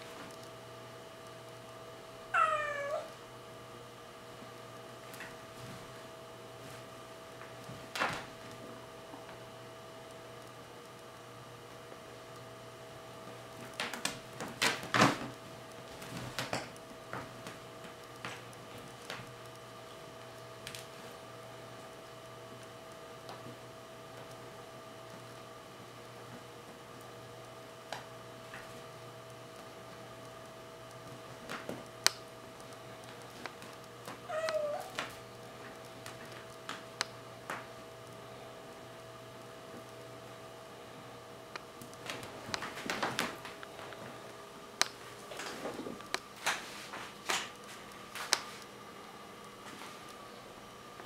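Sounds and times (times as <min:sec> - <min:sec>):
faint steady hum: 0:00.0 - 0:51.0
kitten meowing: 0:02.4 - 0:03.1, 0:34.3 - 0:34.9.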